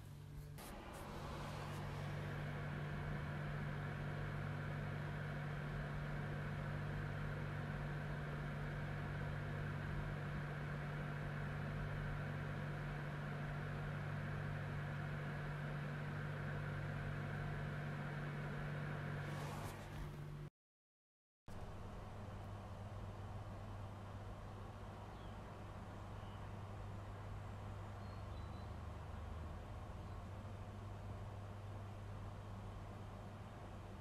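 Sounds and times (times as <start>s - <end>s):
computer fans and pump whirring: 0.0s - 20.5s, 21.5s - 34.0s.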